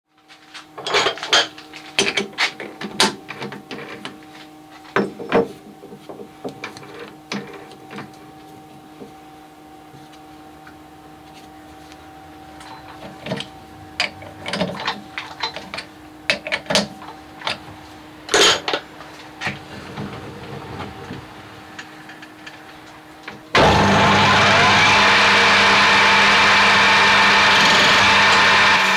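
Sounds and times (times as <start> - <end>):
steady hum: 6.5 - 28.9
lathe running: 23.5 - 28.9.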